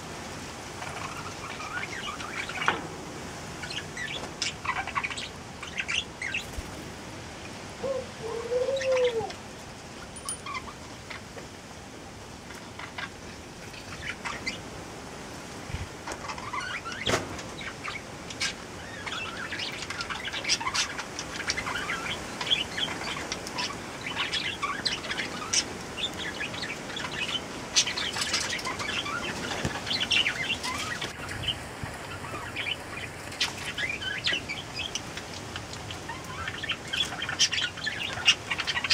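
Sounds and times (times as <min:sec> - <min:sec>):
dove cooing: 0:07.8 - 0:09.4
high bird chirps: 0:10.0 - 0:10.8
beak tapping on glass bowl: 0:10.2 - 0:10.6.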